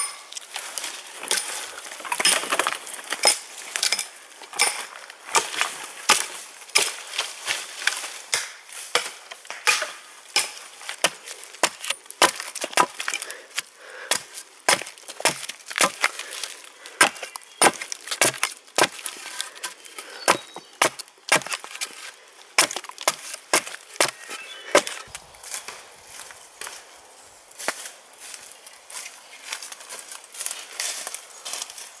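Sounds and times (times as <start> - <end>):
hatchet chopping wood: 4.6 - 7.0, 7.9 - 13.4, 14.0 - 16.4, 17.0 - 22.0, 22.6 - 25.1
wood chips splitting off: 5.3 - 25.8.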